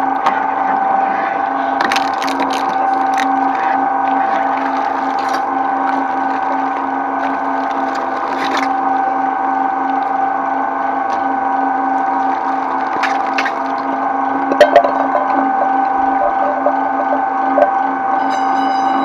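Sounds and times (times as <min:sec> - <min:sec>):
shredder motor and gear hum: 0:00.0 - 0:19.0
plastic packaging tearing crackles: 0:01.8 - 0:08.8, 0:12.0 - 0:14.0.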